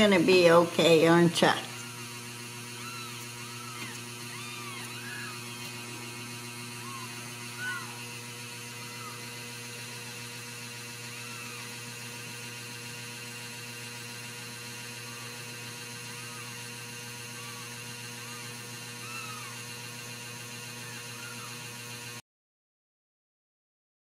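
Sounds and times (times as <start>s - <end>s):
electrical hum: 0.0s - 22.2s
kittens mewing: 1.8s - 12.4s, 14.7s - 21.8s.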